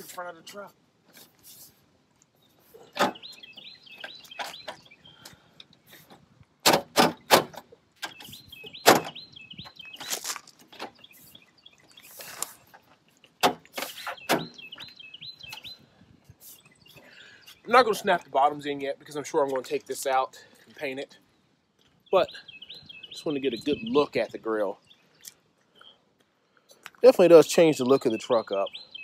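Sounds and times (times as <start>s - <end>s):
small bird chirping: 2.3s - 6.0s, 8.0s - 18.2s, 21.2s - 24.2s, 24.8s - 26.8s.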